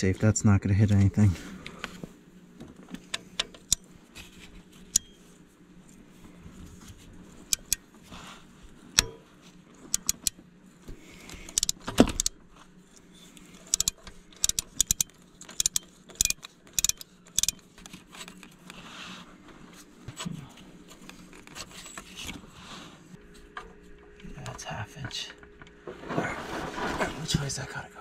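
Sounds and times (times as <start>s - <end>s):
ratchet wrench clicking: 7.5s - 7.8s, 9.9s - 10.3s, 11.5s - 12.3s, 13.7s - 17.6s.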